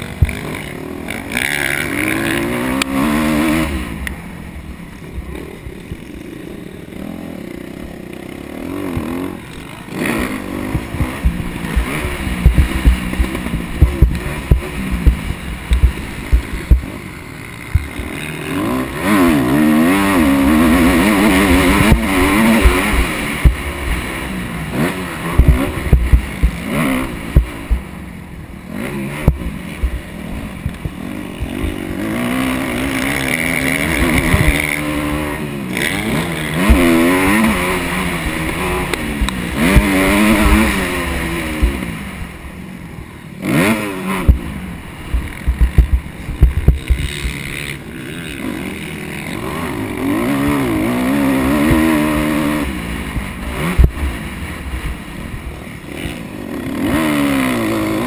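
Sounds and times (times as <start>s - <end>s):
dirt bike engine revving: 0.0s - 58.0s
wind rumble on camera: 10.7s - 16.9s, 25.3s - 27.9s, 44.1s - 47.4s.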